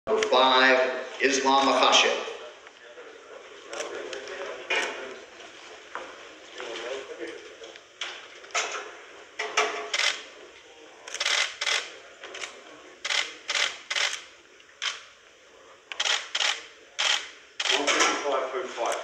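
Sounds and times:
camera shutters clicking: 9.9s - 10.2s, 11.1s - 14.2s, 15.9s - 18.0s.

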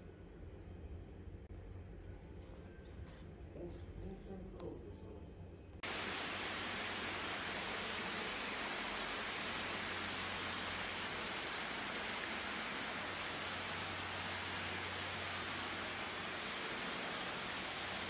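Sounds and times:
rushing spring water: 5.8s - 18.0s.

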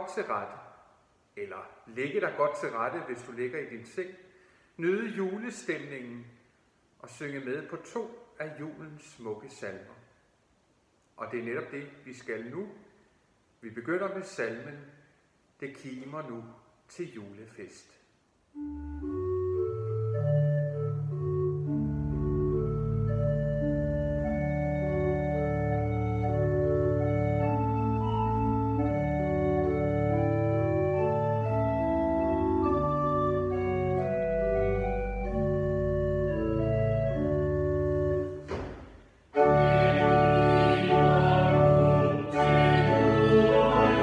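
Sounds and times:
church pipe organ chords: 18.6s - 38.5s, 39.3s - 44.0s.

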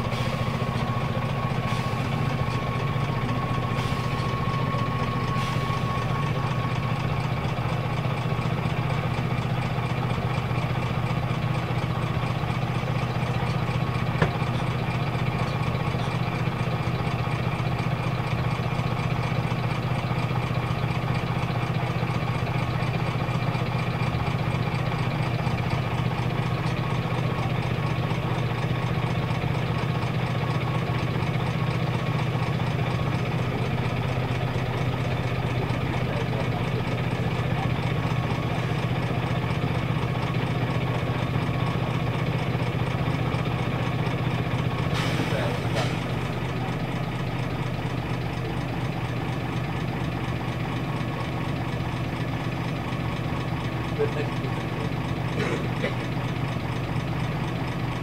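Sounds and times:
bus diesel engine idling: 0.0s - 58.0s.

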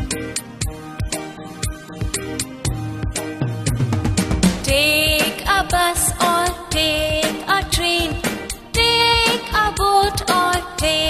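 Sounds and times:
bass line: 0.0s - 5.2s
steady drum beat: 0.0s - 11.0s.

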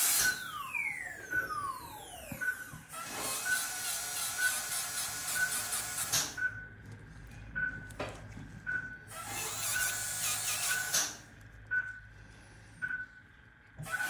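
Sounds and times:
dental handpiece whirring: 0.0s - 6.4s, 9.1s - 11.2s
monitor beeping: 0.1s - 12.2s, 12.8s - 13.4s.

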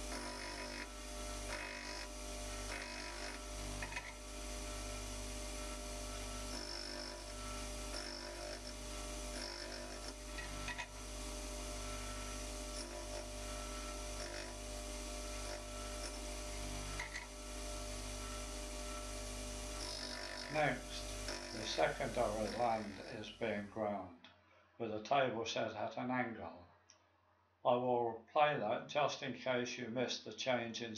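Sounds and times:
light grinding bursts: 0.0s - 23.6s
bench grinder humming: 0.0s - 23.7s.

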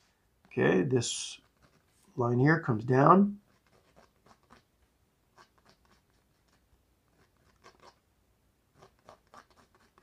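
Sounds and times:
pencil scratching on canvas: 1.4s - 2.2s, 3.4s - 4.7s, 5.3s - 8.0s, 8.7s - 10.0s.

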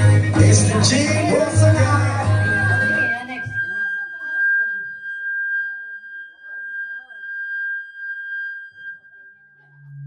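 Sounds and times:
faint voices: 0.0s - 5.2s
microphone feedback ringing: 0.3s - 10.0s.

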